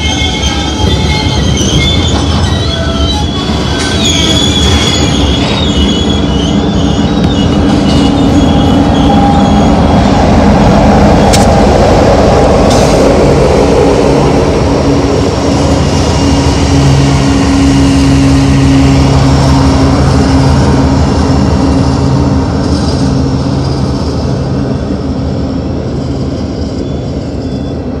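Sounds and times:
locomotive engine drone: 0.0 - 28.0
train wheels rumbling on rails: 0.0 - 28.0
sharp click: 11.3 - 11.6.

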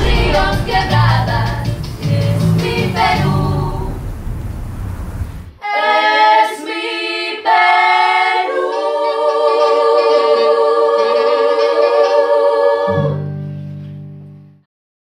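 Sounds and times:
choir singing: 0.0 - 4.4, 5.6 - 13.4
hissing music swell: 0.0 - 5.8.

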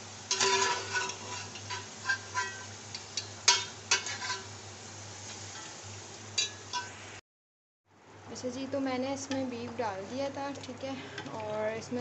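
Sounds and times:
metal spoon clinking on pots: 0.3 - 4.5, 6.4 - 6.9
low steady hum: 7.9 - 12.0.

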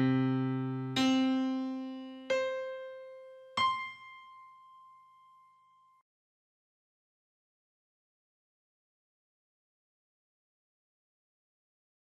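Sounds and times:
piano-like keyboard notes: 0.0 - 6.0.

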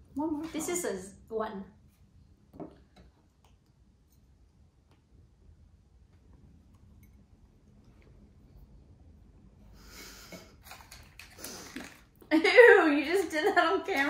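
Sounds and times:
noisy breathing: 9.6 - 10.6.

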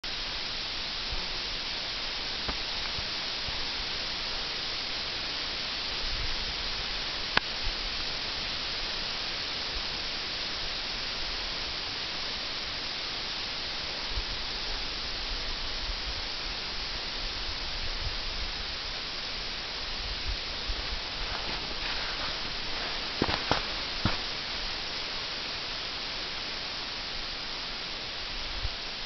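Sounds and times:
slush and snow pouring down: 0.1 - 29.0.

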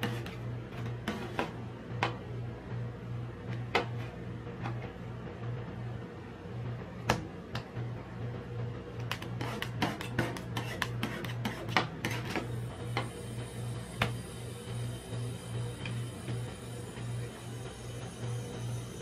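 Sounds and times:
metal spatulas scraping and tapping: 0.0 - 1.5, 9.0 - 12.4
low pulsing hum: 0.0 - 19.0.

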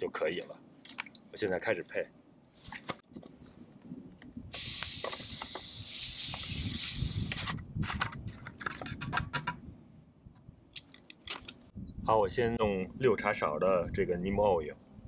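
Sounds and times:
air hissing from sprayer: 4.5 - 7.5
plastic clicks and knocks: 7.9 - 9.6.

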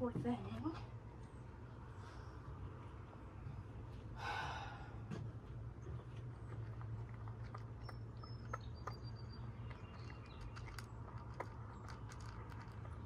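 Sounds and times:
cat chewing food: 5.4 - 13.0.

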